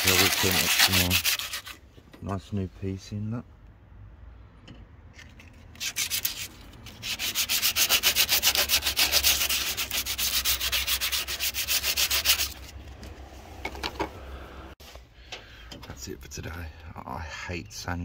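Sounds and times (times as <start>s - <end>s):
sandpaper rubbing: 0.0s - 1.8s, 5.8s - 12.7s.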